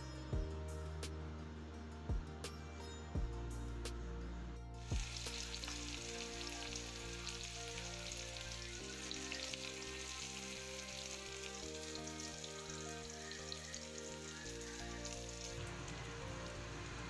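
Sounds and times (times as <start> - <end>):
background music: 0.0 - 17.0
onions sizzling in hot oil: 4.8 - 17.0.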